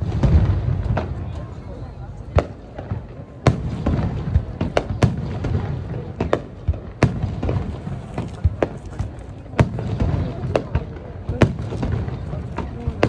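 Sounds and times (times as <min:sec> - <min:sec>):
fireworks bursting bangs: 0:00.0 - 0:13.0.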